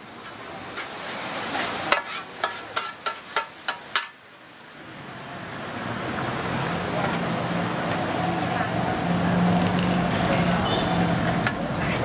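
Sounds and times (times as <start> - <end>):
light sizzling: 0.0 - 4.3
metal spatulas clanking on pan: 1.9 - 4.2.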